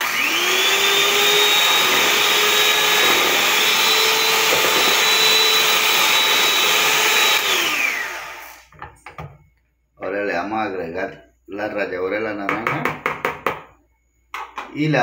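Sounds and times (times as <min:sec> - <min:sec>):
electric hand mixer whine: 0:00.0 - 0:08.8.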